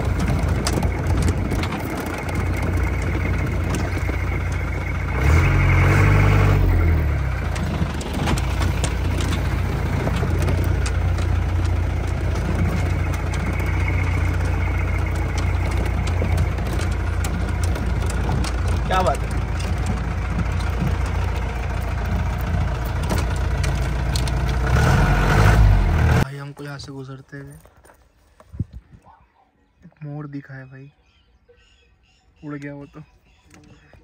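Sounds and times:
vehicle engine revving: 0.0 - 26.3
clicks and knocks: 7.4 - 24.7.

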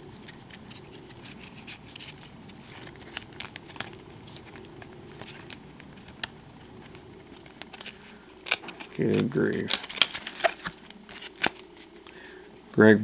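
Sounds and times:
cards flipped by hand: 0.1 - 12.2.

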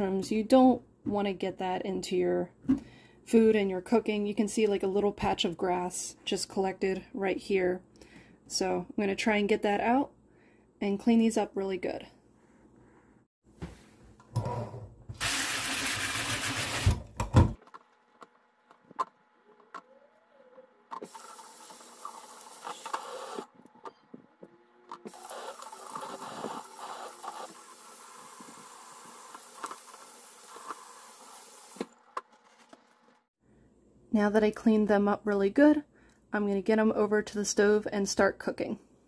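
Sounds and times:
tap water running into colander: 15.2 - 17.1, 21.1 - 23.4, 25.1 - 31.9.

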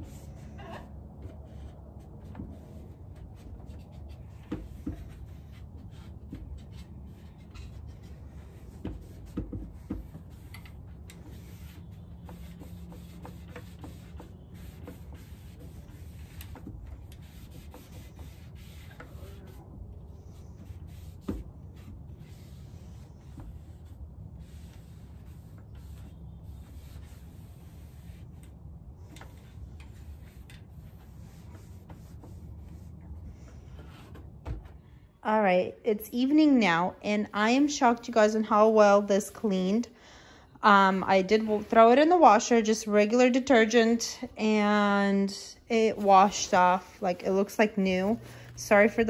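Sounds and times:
cloth wiping wood: 0.0 - 34.2, 45.7 - 49.0.

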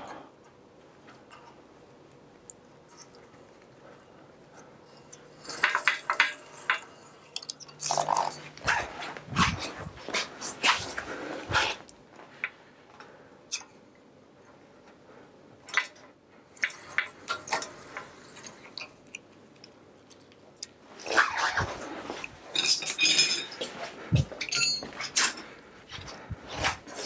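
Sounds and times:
metal tools clinking on bicycle parts: 4.9 - 8.7, 22.5 - 25.4.

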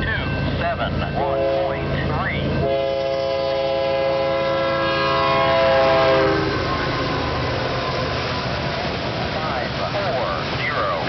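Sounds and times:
locomotive engines rumbling: 0.0 - 11.0
train wheels rumbling: 0.0 - 11.0
locomotive air horn blast: 1.2 - 1.9, 2.6 - 8.5.

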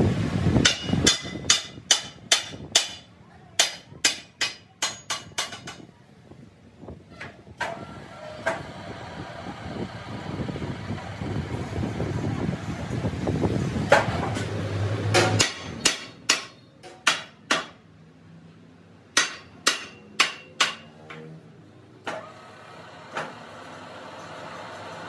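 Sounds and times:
hammer strikes on steel rim: 0.6 - 5.8, 15.1 - 17.8, 19.2 - 21.0.

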